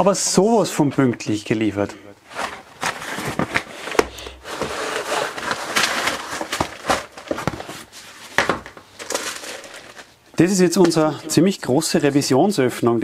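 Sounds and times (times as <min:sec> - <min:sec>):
cardboard and plastic rustling: 0:02.2 - 0:10.2.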